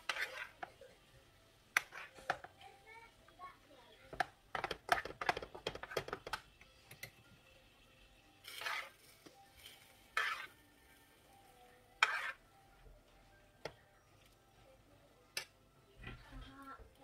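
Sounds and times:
metal spoon scraping frying pan: 0:00.0 - 0:00.8, 0:01.7 - 0:02.5, 0:08.4 - 0:10.7, 0:11.9 - 0:12.5.

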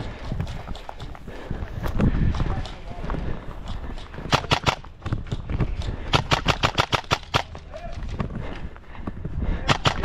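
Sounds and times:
airsoft rifle shots: 0:04.3 - 0:05.4, 0:06.1 - 0:07.8, 0:09.6 - 0:10.0.

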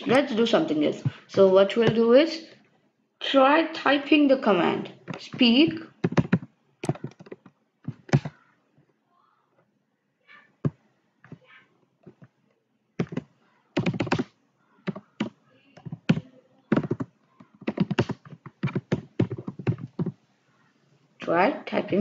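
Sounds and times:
computer keyboard keystrokes: 0:06.0 - 0:08.4, 0:13.0 - 0:20.2.

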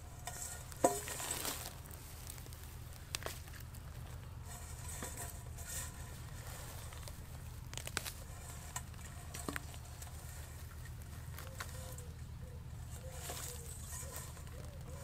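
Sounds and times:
hands picking mushrooms: 0:00.0 - 0:15.0
low background hum: 0:00.0 - 0:15.0.

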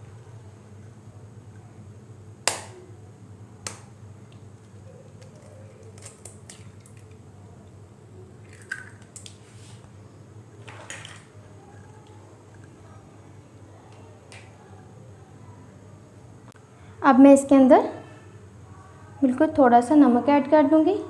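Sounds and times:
low steady hum: 0:00.0 - 0:21.0
eggshell breaking clicks: 0:05.1 - 0:07.2, 0:08.5 - 0:09.3.

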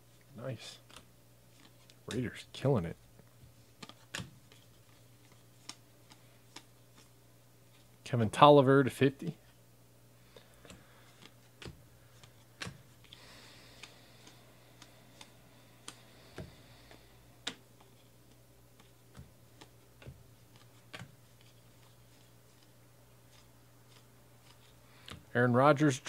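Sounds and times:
low steady hum: 0:00.0 - 0:26.0
cards sliding and rubbing: 0:00.8 - 0:02.0, 0:03.6 - 0:07.9, 0:10.5 - 0:25.2
cards clicking and tapping: 0:03.7 - 0:07.1, 0:10.4 - 0:25.3.

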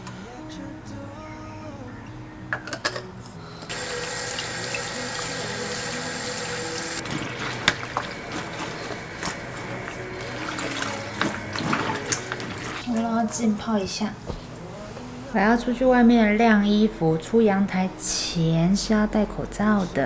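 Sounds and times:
faucet running into basin: 0:03.7 - 0:13.0
hands sloshing laundry in water: 0:07.0 - 0:13.0.

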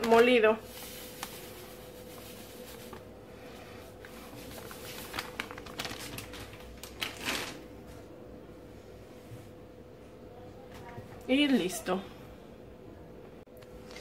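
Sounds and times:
plastic bag rustling: 0:00.0 - 0:08.0.

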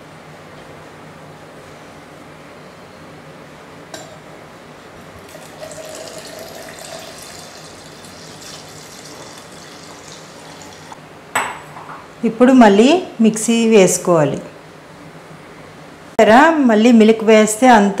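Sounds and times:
milk pouring into metal jar: 0:05.3 - 0:10.9.

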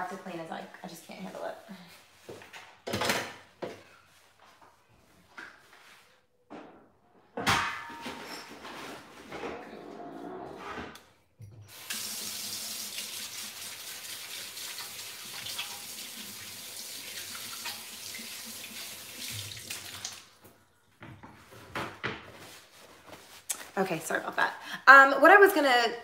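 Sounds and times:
faucet water running into sink: 0:11.7 - 0:20.4.

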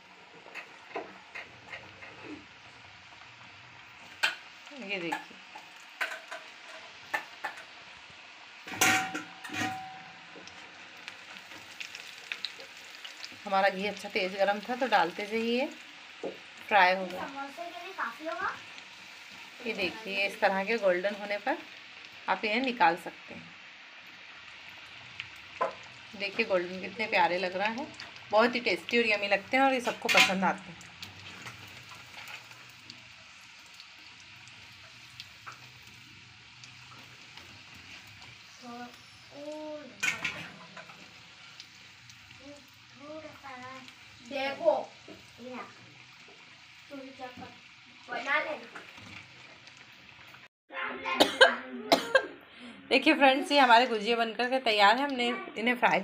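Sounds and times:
food sizzling in hot oil: 0:00.0 - 0:50.5
metal skimmer knocking on pan: 0:08.7 - 0:10.1.

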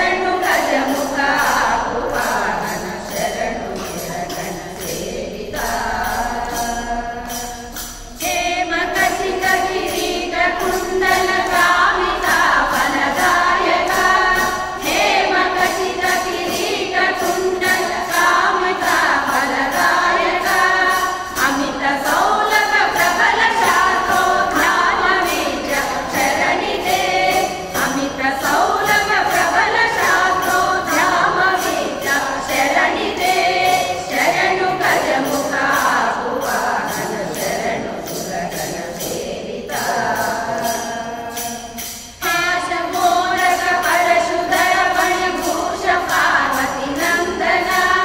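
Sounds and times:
rhythmic percussion beat: 0:00.0 - 0:48.0
singer leading on a microphone: 0:00.0 - 0:48.0
women's group singing devotional song: 0:00.0 - 0:48.0.

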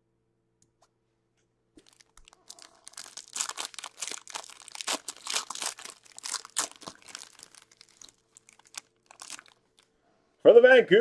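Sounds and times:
foil wrapper crinkling and tearing: 0:01.8 - 0:09.9.

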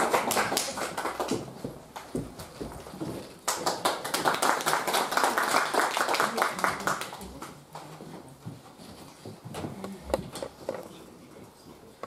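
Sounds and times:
audience clapping: 0:00.0 - 0:02.6, 0:03.3 - 0:08.0.

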